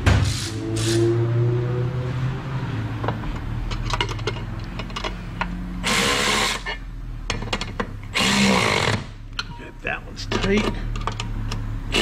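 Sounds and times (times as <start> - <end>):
electric ratchet running: 5.8 - 6.7, 8.1 - 9.1.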